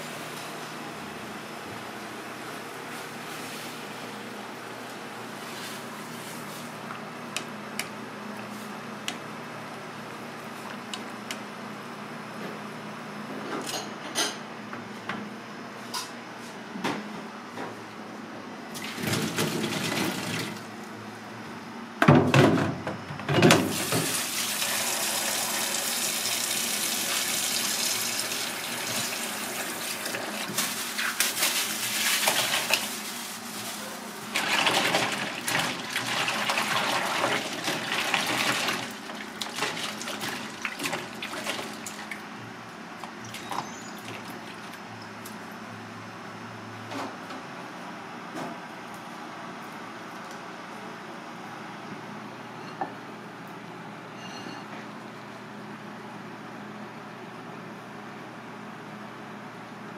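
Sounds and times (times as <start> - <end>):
tap water running: 18.8 - 20.6, 23.6 - 33.0, 34.3 - 42.2.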